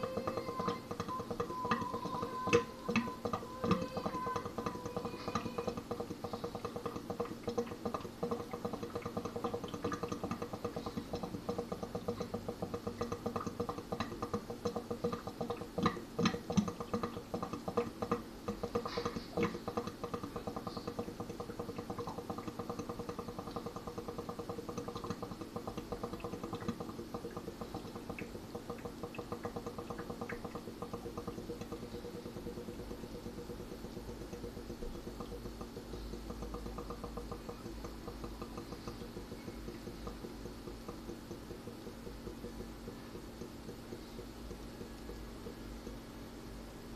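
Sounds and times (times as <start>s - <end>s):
drain pops: 0.0s - 46.9s
sink drain gurgling: 0.0s - 46.9s.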